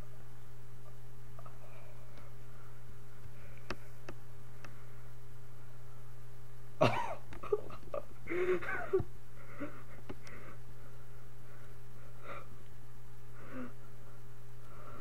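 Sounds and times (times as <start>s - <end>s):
low electrical hum: 0.0s - 15.0s
man's cough-like vocal burst: 6.8s - 7.2s.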